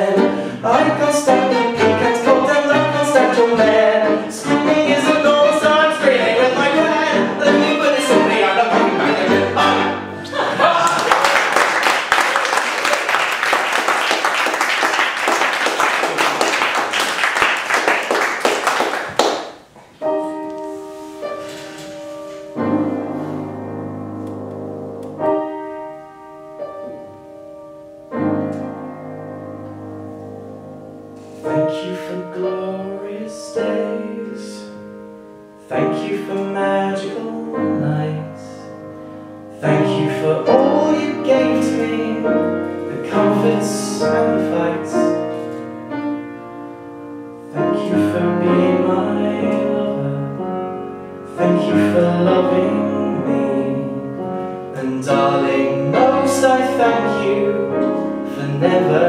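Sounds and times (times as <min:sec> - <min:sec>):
audience applauding: 0:10.3 - 0:19.7
slow solo piano chords: 0:19.9 - 0:59.0.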